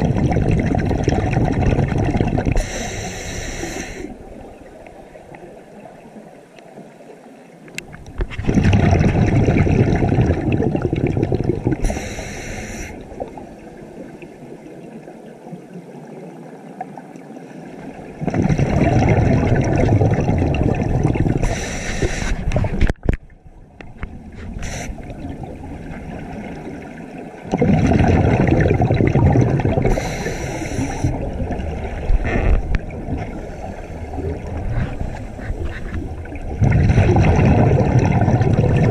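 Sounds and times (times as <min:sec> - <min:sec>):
bubbling exhalation underwater: 0:00.0 - 0:02.8, 0:08.2 - 0:12.3, 0:18.1 - 0:22.9, 0:24.5 - 0:38.9
regulator inhalation hiss: 0:02.6 - 0:04.2, 0:11.8 - 0:13.0, 0:21.4 - 0:22.5, 0:24.6 - 0:25.1, 0:29.9 - 0:31.2.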